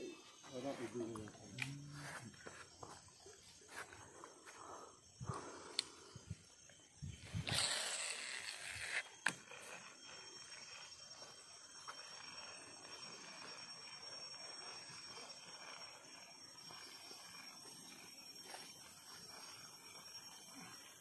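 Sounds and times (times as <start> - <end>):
riverside ambience: 0.0 - 20.7
thin high whine: 0.0 - 21.0.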